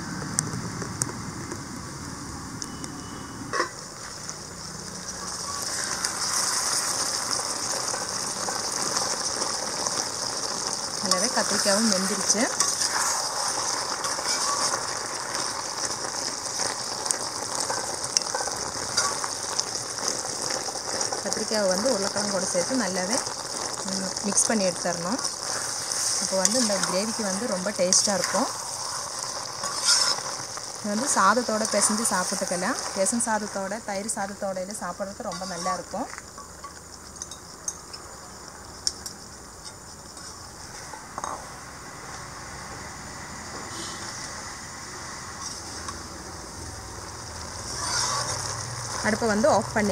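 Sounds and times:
faint steady hiss: 0:00.0 - 0:49.9
gravy sizzling: 0:00.0 - 0:49.9
metal ladle scraping a pan: 0:03.5 - 0:03.8, 0:07.8 - 0:21.3, 0:25.2 - 0:33.0, 0:35.2 - 0:36.1, 0:45.4 - 0:46.0, 0:47.7 - 0:48.6.

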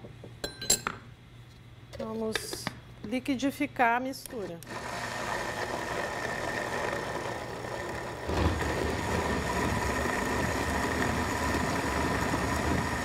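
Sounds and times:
blender motor whining: 0:04.6 - 0:13.0.

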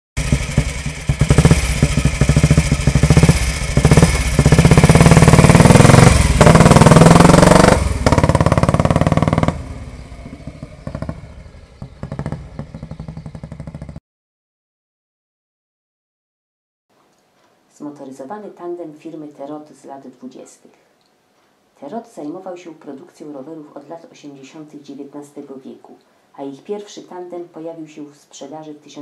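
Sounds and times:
motorcycle engine revving: 0:00.2 - 0:14.0.

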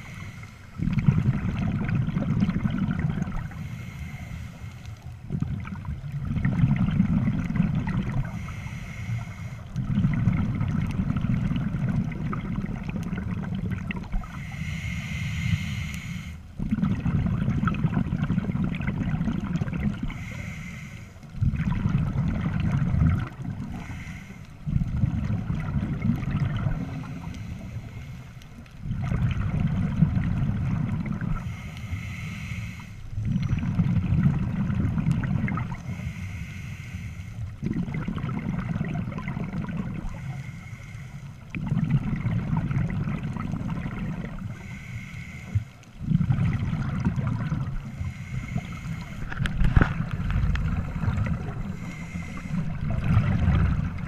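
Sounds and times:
diver breathing through regulator: 0:00.0 - 0:01.2, 0:03.1 - 0:05.2, 0:08.1 - 0:10.0, 0:14.2 - 0:16.6, 0:19.9 - 0:21.4, 0:23.6 - 0:24.9, 0:26.6 - 0:28.7, 0:31.2 - 0:33.8, 0:35.6 - 0:37.7, 0:39.9 - 0:41.8, 0:44.1 - 0:54.0
exhaled bubbles gurgling: 0:00.0 - 0:54.0.

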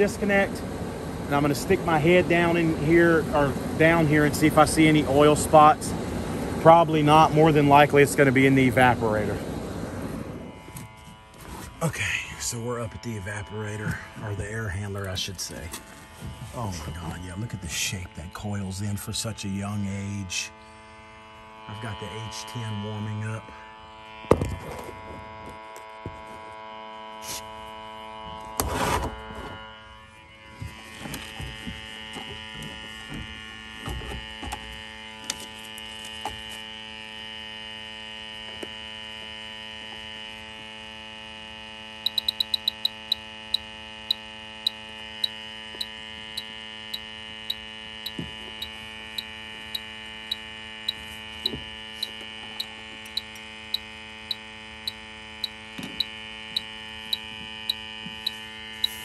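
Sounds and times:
leak detector electronic hum: 0:00.0 - 0:59.0
leak detector ticking: 0:38.3 - 0:59.0.

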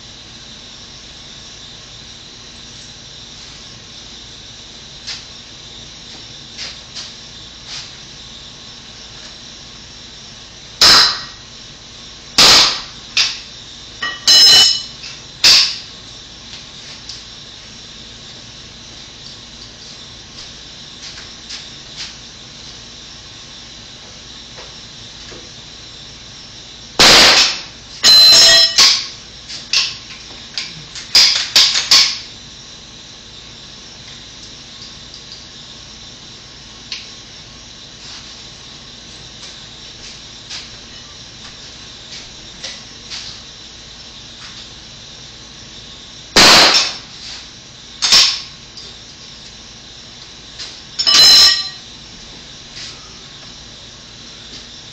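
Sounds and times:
hammer blows with metallic ring: 0:10.8 - 0:11.4, 0:12.4 - 0:15.9, 0:27.0 - 0:29.2, 0:51.0 - 0:51.8.

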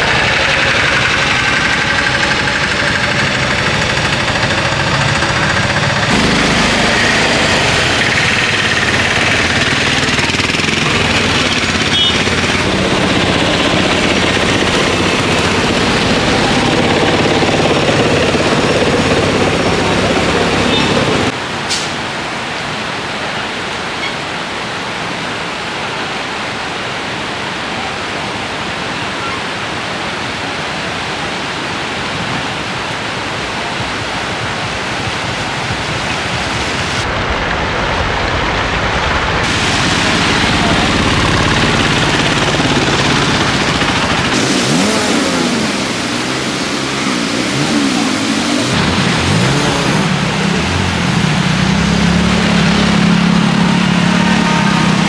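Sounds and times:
auto rickshaw engine revving: 0:00.0 - 0:21.4, 0:34.0 - 0:55.0
floodwater rushing: 0:00.0 - 0:55.0.

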